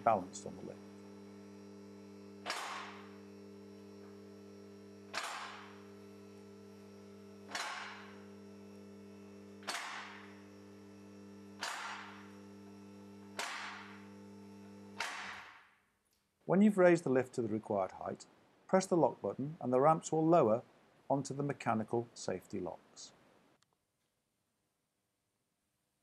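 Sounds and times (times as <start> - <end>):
lift motor humming: 0.0 - 15.5
sharp metallic clacks: 2.4 - 3.0, 5.1 - 5.7, 7.5 - 8.1, 9.6 - 10.3, 11.6 - 12.2, 13.4 - 13.9.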